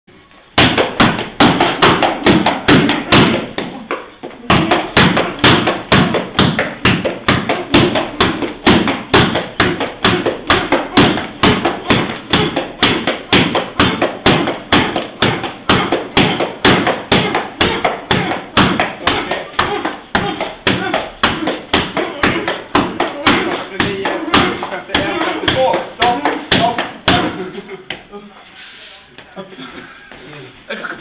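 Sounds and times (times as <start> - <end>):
kicks thudding on kick shield: 4.5 - 27.4.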